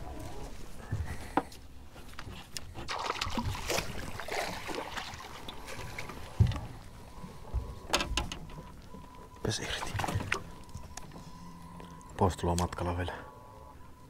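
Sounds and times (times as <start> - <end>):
water splashing: 2.7 - 6.6, 9.4 - 11.0
clicks and knocks on boat: 5.5 - 11.2.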